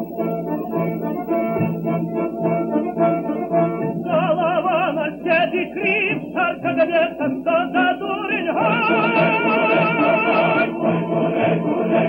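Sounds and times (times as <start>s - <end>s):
instrumental accompaniment: 0.0s - 5.2s, 8.6s - 12.0s
person singing with vibrato: 3.9s - 11.9s.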